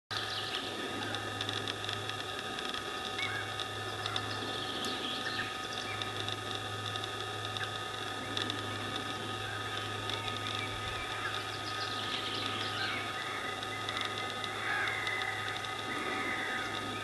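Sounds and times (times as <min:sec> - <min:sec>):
background hum and hiss: 0:00.1 - 0:17.0
constant whining tones: 0:00.1 - 0:17.0
faint bird calls: 0:02.9 - 0:06.2, 0:07.6 - 0:17.0.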